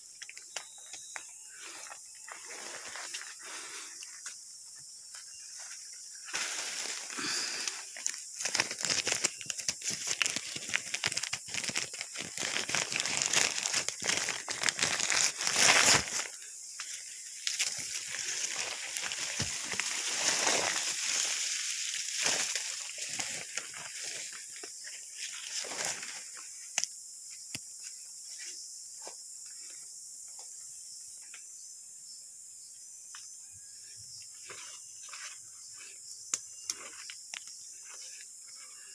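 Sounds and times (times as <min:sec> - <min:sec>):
high insect drone: 0:00.0 - 0:38.9
rustling through vegetation: 0:01.4 - 0:04.2, 0:05.0 - 0:26.9.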